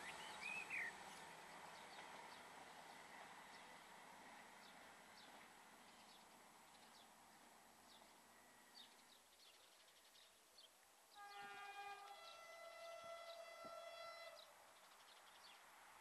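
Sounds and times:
distant train horn: 11.1s - 14.6s.

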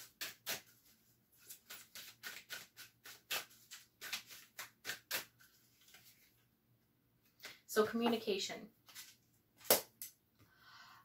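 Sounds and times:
cards being shuffled: 0.0s - 6.4s, 8.8s - 10.1s.

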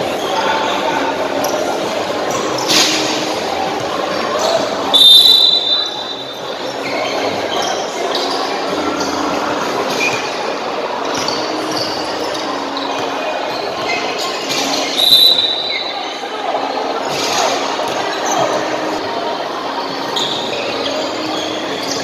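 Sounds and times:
crowd noise: 0.0s - 22.0s
sneakers squeaking on court: 11.0s - 16.2s, 19.8s - 22.0s.

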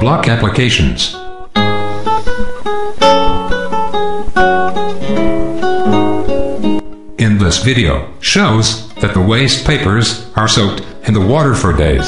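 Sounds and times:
plucked instrumental melody: 1.0s - 12.0s.

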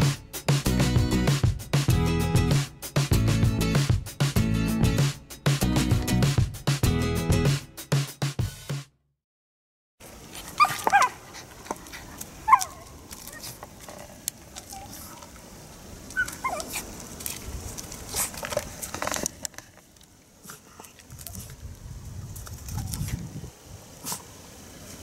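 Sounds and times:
leaves rustling: 10.0s - 25.0s
dog yelping and whining: 10.6s - 11.2s, 12.4s - 13.6s, 16.2s - 16.9s.

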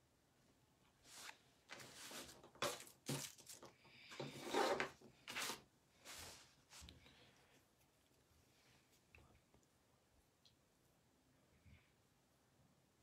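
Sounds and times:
rustles and scrapes: 1.0s - 7.0s.

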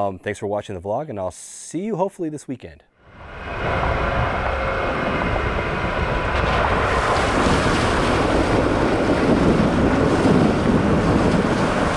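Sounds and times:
wind on microphone: 3.1s - 11.9s
water splashing: 6.2s - 11.9s.

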